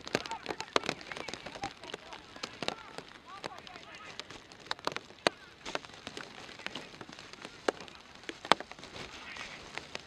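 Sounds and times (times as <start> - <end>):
rain patter: 0.0 - 10.0
sharp raindrop taps: 0.0 - 10.0.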